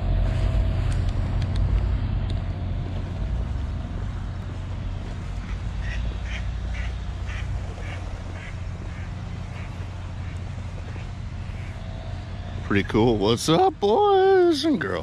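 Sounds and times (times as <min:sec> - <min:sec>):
steady low rumble: 0:00.0 - 0:15.0
duck quacking: 0:05.4 - 0:10.4.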